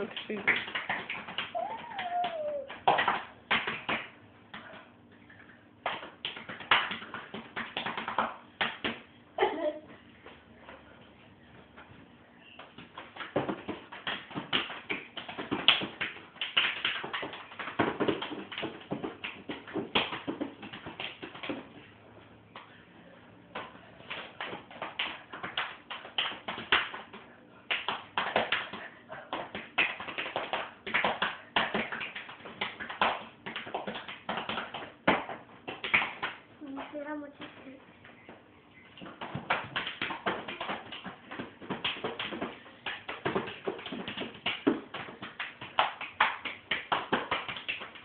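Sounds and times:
hands slapping a body: 0:23.6 - 0:37.6, 0:39.0 - 0:48.0.

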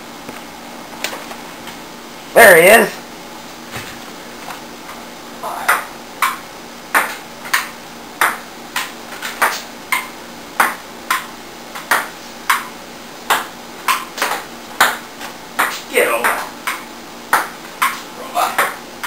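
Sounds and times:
table tennis ball clicks: 0:07.0 - 0:12.7.

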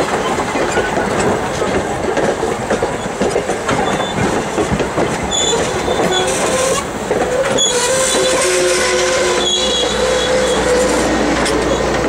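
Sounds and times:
train wheels clicking over rail joints: 0:00.0 - 0:12.0
high wheel squeal: 0:05.3 - 0:12.0.

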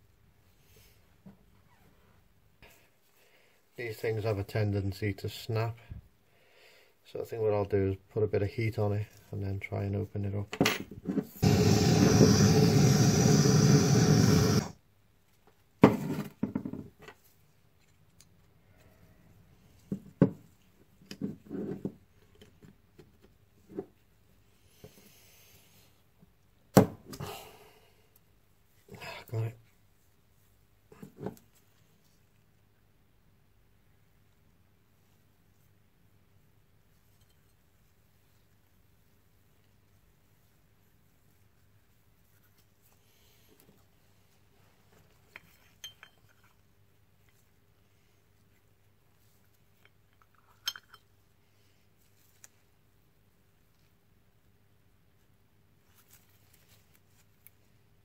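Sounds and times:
light metal clicks and clinks: 0:45.4 - 0:46.6, 0:49.8 - 0:51.2.

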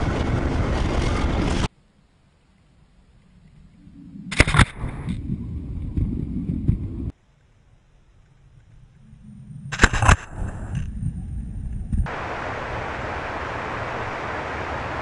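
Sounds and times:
loud crackling blast of snow: 0:00.0 - 0:01.7
rumbling rush of snow: 0:00.0 - 0:01.7, 0:09.0 - 0:15.0
train low rumble: 0:00.0 - 0:01.7.

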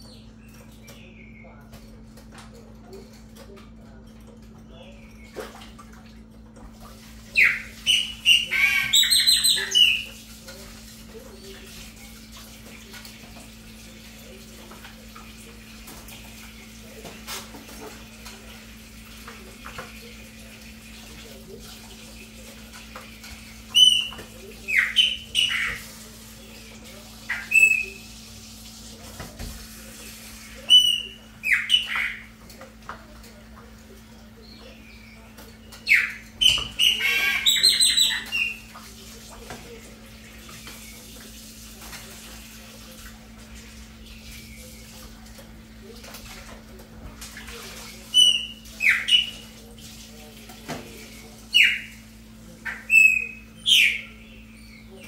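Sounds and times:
blackbird singing: 0:00.0 - 0:01.7, 0:07.3 - 0:10.2, 0:23.7 - 0:25.8, 0:27.3 - 0:28.0, 0:30.6 - 0:32.3, 0:34.4 - 0:38.7, 0:48.1 - 0:49.4, 0:51.5 - 0:51.9, 0:52.6 - 0:55.0.

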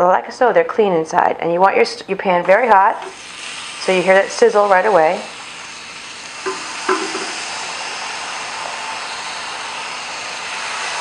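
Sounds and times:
mushrooms sizzling in a frying pan: 0:03.0 - 0:11.0.

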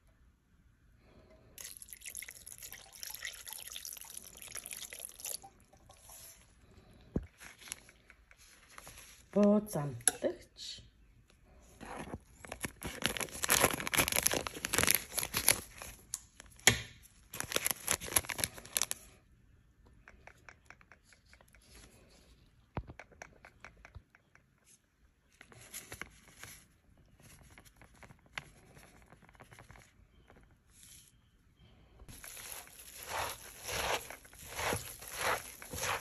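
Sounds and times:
plastic packet crinkling: 0:12.3 - 0:16.0, 0:17.3 - 0:19.1, 0:32.1 - 0:36.0
spice shaken from packet: 0:32.1 - 0:36.0.

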